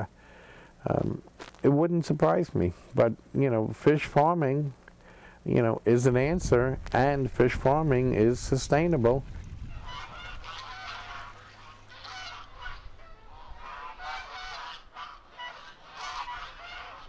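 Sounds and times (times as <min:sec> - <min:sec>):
farmyard fowl calling: 0:09.7 - 0:17.0.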